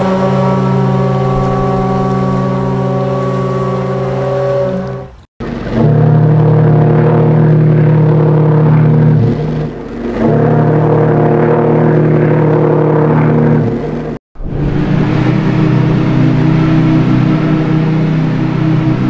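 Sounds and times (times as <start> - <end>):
steam chime whistle blasts: 0.0 - 5.2.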